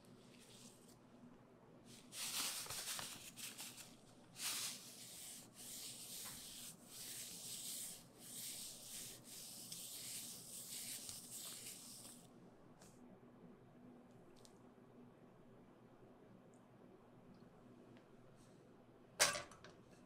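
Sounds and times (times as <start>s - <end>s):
gritty salt rubbing on fish: 4.4s - 12.2s.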